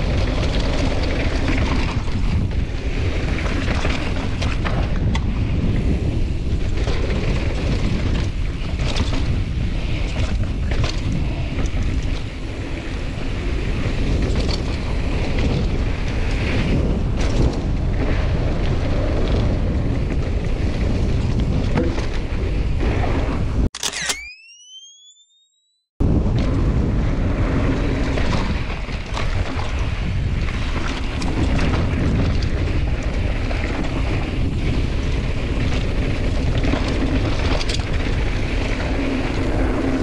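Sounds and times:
tyres rumbling over dirt trail: 0.0s - 23.7s, 26.0s - 40.0s
wind buffeting microphone: 0.0s - 23.7s, 26.0s - 40.0s
bike knocks and clatters: 6.6s - 12.4s, 19.0s - 23.0s.

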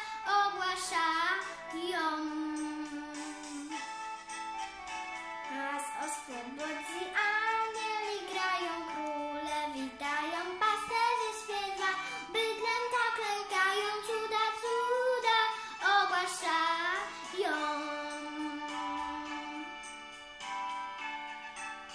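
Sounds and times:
girl singing a carol: 0.0s - 3.8s, 5.5s - 19.9s.

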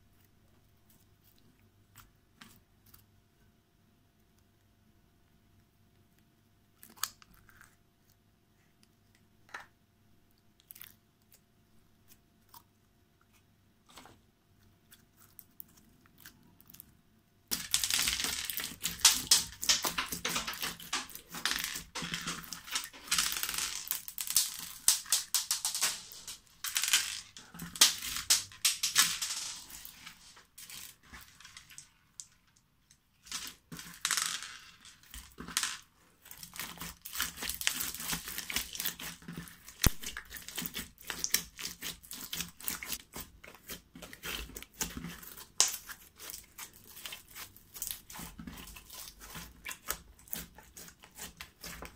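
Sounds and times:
sequins crackling in slime: 17.5s - 32.4s, 36.2s - 51.9s.

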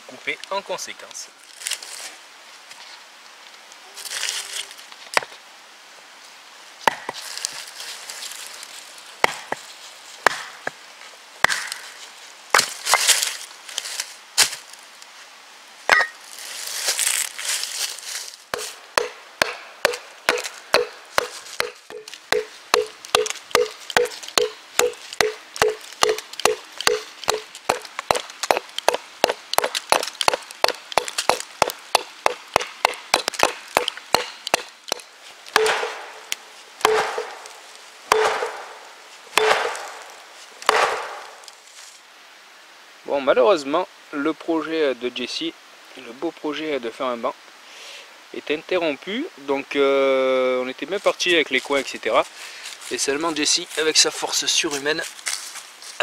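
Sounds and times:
axe knocking wooden wedges: 9.2s - 9.6s, 10.2s - 10.5s, 11.4s - 11.8s, 18.6s - 37.5s, 38.1s - 38.8s, 39.4s - 41.4s
wood cracking: 18.5s - 41.6s
knife batoned through log: 35.6s - 36.2s, 39.4s - 40.1s.

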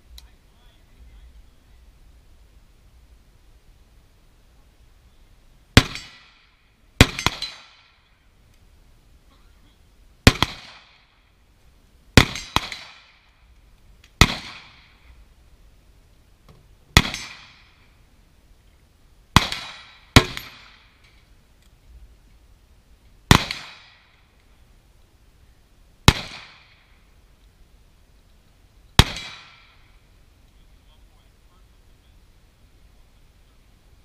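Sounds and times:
gunshots with echo: 29.0s - 29.8s.

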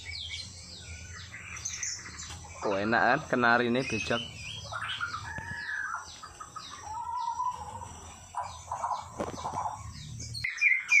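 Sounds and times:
bird singing whistled phrases: 10.4s - 11.0s.

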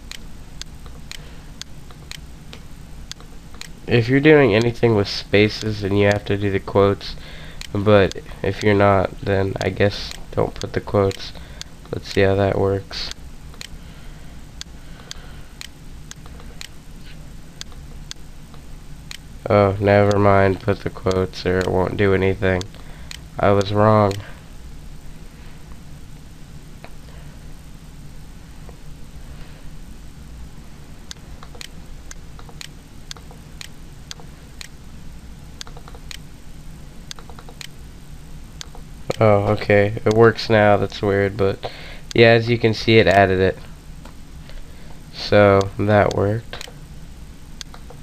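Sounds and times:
sharp clicks: 0.0s - 3.8s, 13.1s - 13.8s, 14.6s - 16.8s, 17.6s - 19.3s, 22.6s - 24.2s, 31.1s - 34.8s, 35.6s - 36.3s, 37.1s - 37.8s, 38.6s - 40.2s, 45.6s - 46.9s, 47.6s - 48.0s
low steady hum: 0.0s - 48.0s
faint sharp clicks: 13.1s - 13.8s, 35.6s - 36.3s, 37.1s - 37.8s, 45.6s - 46.8s, 47.6s - 48.0s.

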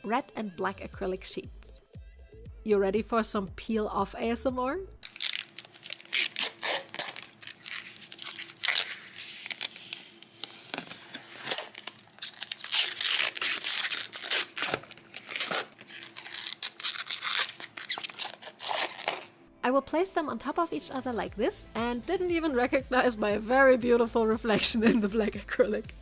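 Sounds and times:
loose film crinkling: 5.0s - 19.3s
protective film peeling: 5.0s - 19.3s.

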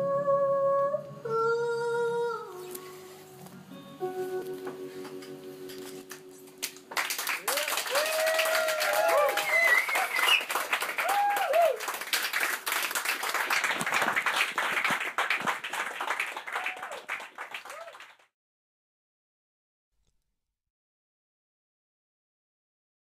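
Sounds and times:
audience clapping: 5.7s - 18.3s.

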